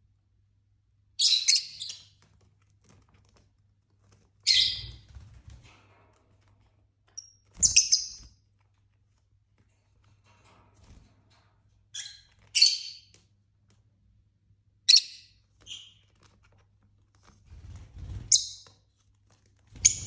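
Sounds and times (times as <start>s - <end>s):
lovebird chirps: 1.2s - 2.1s.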